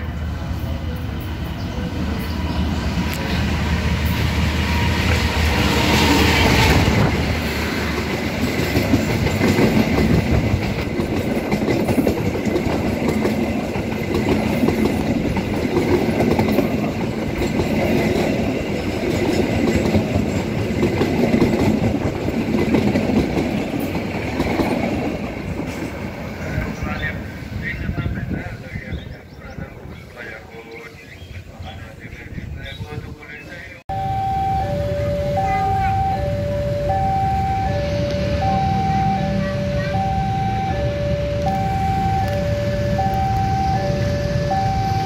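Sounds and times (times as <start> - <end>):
diesel locomotive engine hum: 0.0 - 45.0
train wheels clickety-clack: 4.0 - 27.0.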